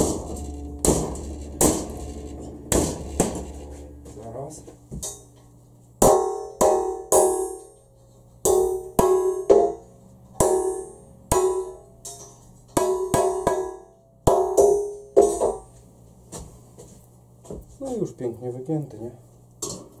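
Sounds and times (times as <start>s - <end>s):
hammer striking metal: 0.0s - 15.7s.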